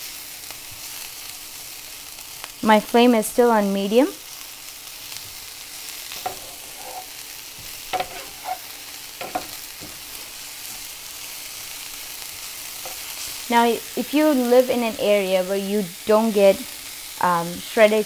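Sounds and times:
vegetables sizzling in oil: 0:00.0 - 0:18.0
wooden spatula scraping a pan: 0:06.0 - 0:11.0, 0:12.8 - 0:13.6.

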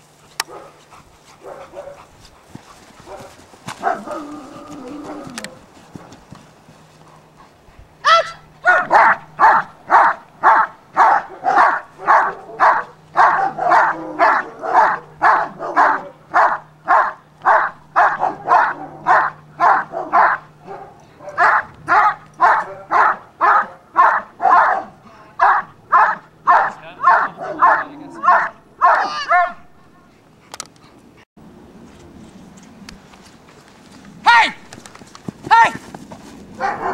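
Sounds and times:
dog barking: 0:00.4 - 0:00.8, 0:01.4 - 0:02.1, 0:03.0 - 0:04.4, 0:08.1 - 0:29.7, 0:36.6 - 0:36.9.

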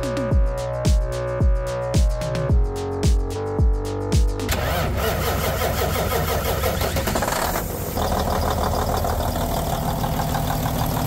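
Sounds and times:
diesel truck engine idling: 0:04.5 - 0:11.0.

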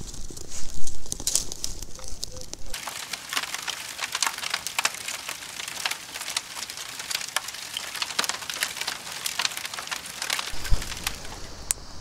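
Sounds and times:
fire crackling and popping: 0:00.0 - 0:12.0
steady hiss: 0:02.8 - 0:12.0.

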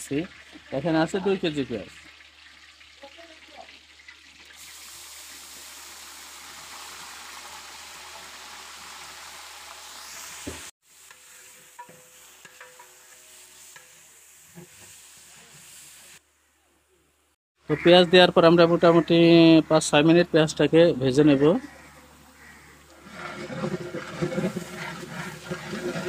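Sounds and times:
onion paste sizzling in hot oil: 0:00.0 - 0:16.6, 0:21.7 - 0:26.0
metal spatula scraping pot: 0:11.2 - 0:14.0, 0:22.9 - 0:26.0.

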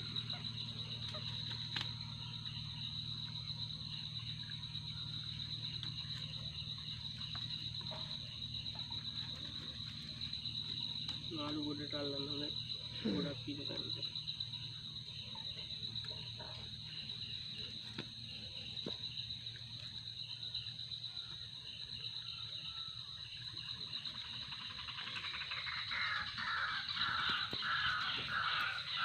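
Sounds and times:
insects droning: 0:00.0 - 0:29.0
bird calling: 0:24.4 - 0:29.0.

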